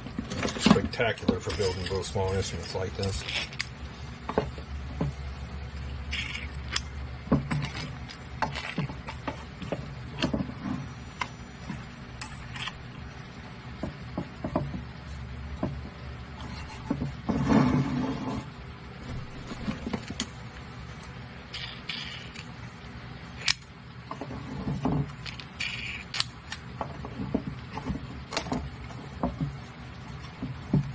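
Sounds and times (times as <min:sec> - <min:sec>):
handling and clattering: 0:00.0 - 0:05.2.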